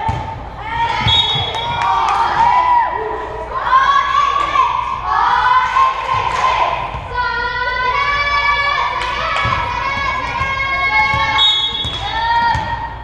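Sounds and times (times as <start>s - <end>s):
ball bouncing: 0.0s - 0.3s, 9.4s - 12.8s
children calling and shouting: 0.6s - 11.4s.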